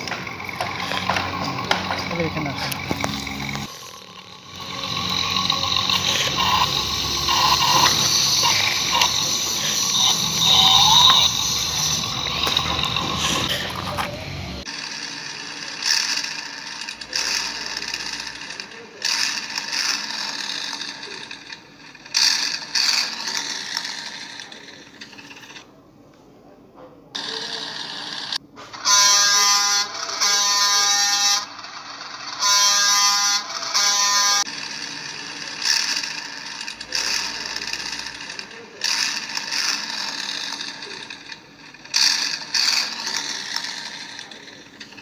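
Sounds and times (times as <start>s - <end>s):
toy truck scraping over gravel: 0.0s - 14.3s
toy electric motor whirring: 0.0s - 25.7s, 27.1s - 45.0s.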